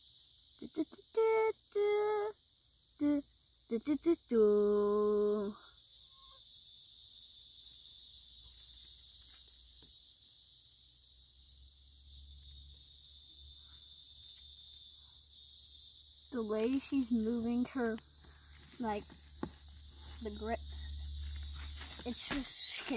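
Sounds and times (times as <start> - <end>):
insects chirring: 0.0 - 22.9
person humming: 0.6 - 2.3, 3.0 - 5.6.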